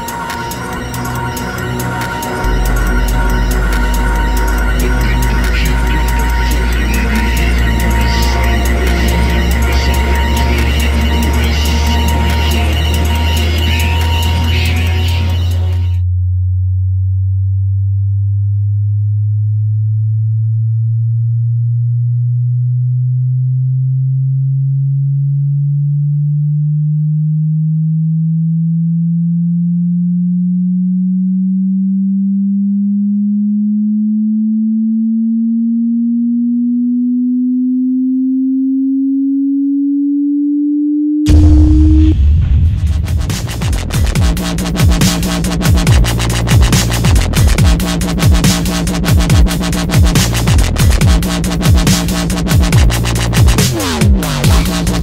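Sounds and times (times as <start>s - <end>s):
synth riser tone gliding upward: 0.0s - 16.0s, 28.4s - 55.0s.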